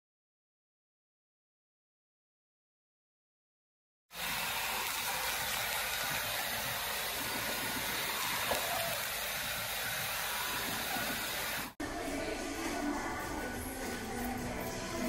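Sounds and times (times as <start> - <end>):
hair dryer running: 4.2 - 11.8.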